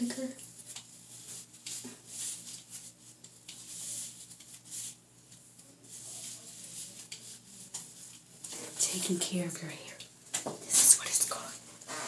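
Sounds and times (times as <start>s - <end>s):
comb scratching through hair: 0.5s - 9.2s.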